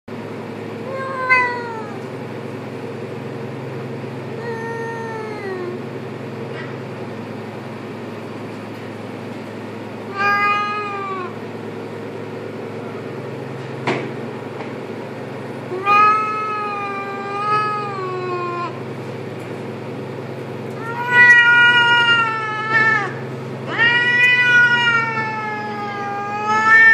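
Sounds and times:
cat meowing: 0.9s - 2.0s, 4.4s - 5.8s, 10.1s - 11.4s, 15.7s - 18.8s, 20.8s - 26.9s.

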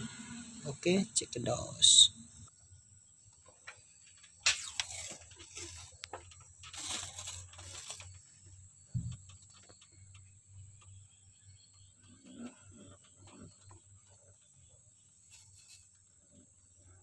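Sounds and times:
paper crinkling and tearing: 6.7s - 8.1s
dull bump: 8.9s - 9.6s.

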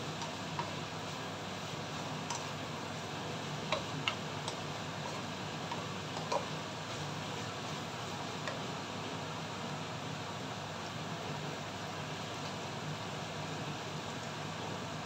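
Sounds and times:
food sizzling in a pan: 0.0s - 15.0s
spatula clicking against pan: 2.2s - 2.5s, 3.7s - 4.6s, 5.6s - 6.5s.

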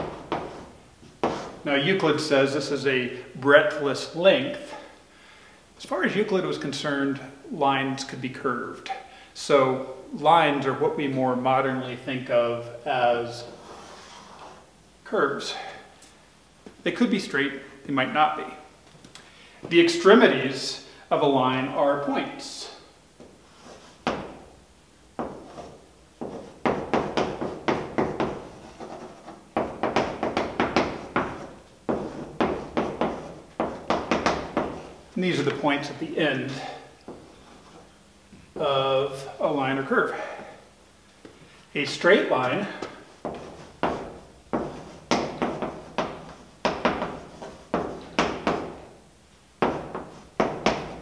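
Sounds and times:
chalk tapping on blackboard: 0.0s - 1.6s, 25.2s - 34.9s, 42.8s - 48.8s, 49.6s - 51.0s.

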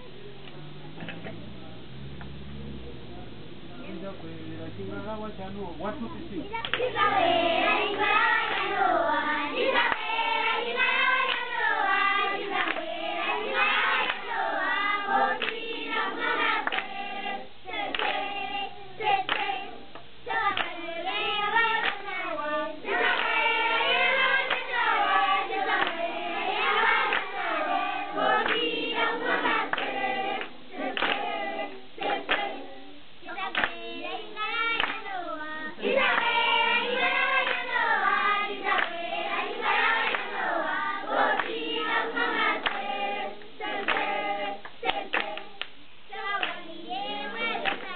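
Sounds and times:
hand claps: 6.6s - 6.9s, 11.2s - 11.5s, 12.6s - 12.9s, 15.4s - 15.7s, 16.6s - 17.0s, 17.9s - 18.3s, 19.1s - 20.8s, 21.8s - 22.1s, 23.0s - 24.7s, 25.7s - 26.0s, 26.8s - 27.4s, 28.2s - 31.4s, 32.0s - 32.6s, 33.5s - 33.8s, 34.8s - 35.1s, 38.7s - 39.0s, 41.1s - 41.6s, 42.2s - 43.0s, 43.8s - 44.2s, 44.8s - 46.6s, 47.3s - 47.9s
children singing: 6.6s - 47.9s.

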